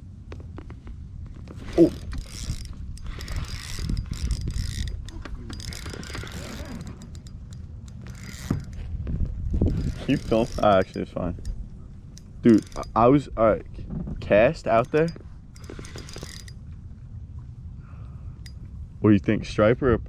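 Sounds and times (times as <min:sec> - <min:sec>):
wind rumble on microphone: 0:00.0 - 0:20.0
fishing reel gears clicking: 0:01.7 - 0:08.8, 0:09.6 - 0:13.1, 0:14.6 - 0:16.6.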